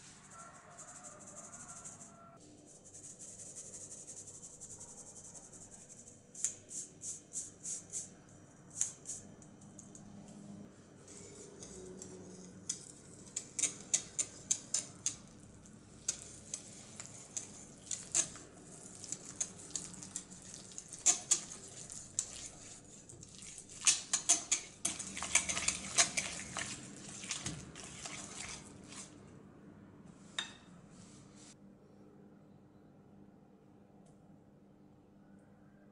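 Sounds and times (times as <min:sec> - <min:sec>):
utensils clinking against dishes: 0:23.7 - 0:26.8.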